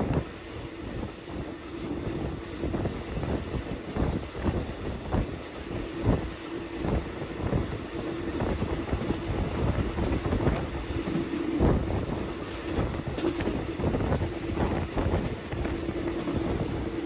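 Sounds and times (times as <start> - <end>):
train wheels rumbling on rails: 0.0 - 17.0
train wheels clattering: 7.4 - 17.0.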